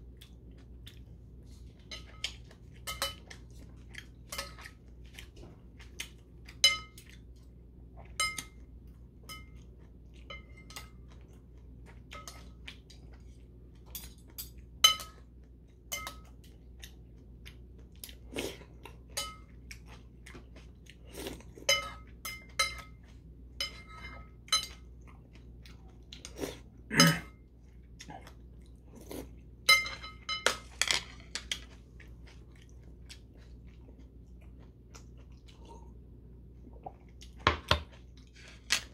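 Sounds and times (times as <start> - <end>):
chewing noodles: 0.0 - 8.2, 27.5 - 29.5, 31.4 - 36.0
utensils clinking on porcelain bowl: 1.8 - 3.5, 4.3 - 4.7, 6.5 - 7.1, 9.3 - 9.6, 10.2 - 11.0, 12.1 - 12.5, 13.9 - 15.2, 19.1 - 19.6, 21.6 - 23.0, 23.6 - 24.9, 29.7 - 31.6.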